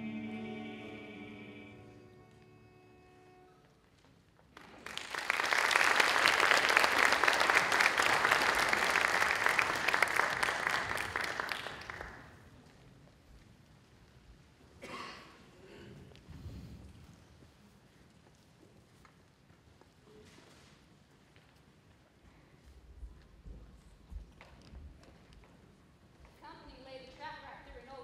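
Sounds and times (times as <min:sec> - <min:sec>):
held sung chord: 0:00.0 - 0:03.5
audience applauding: 0:04.6 - 0:12.5.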